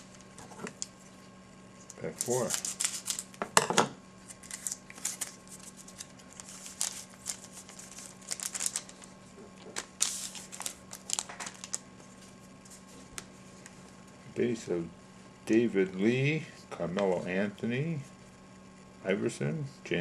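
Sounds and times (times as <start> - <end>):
faint steady hum: 0.0 - 20.0
cards handled: 1.8 - 3.4, 4.2 - 13.8
wrapper tearing and crinkling: 2.1 - 3.4, 4.3 - 9.1, 9.8 - 11.8.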